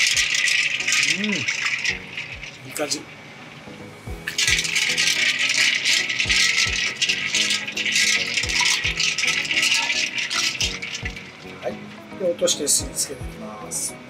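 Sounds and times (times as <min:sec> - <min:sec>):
water splashing: 0:00.0 - 0:03.2, 0:04.2 - 0:12.7
background music with beat: 0:03.7 - 0:14.0.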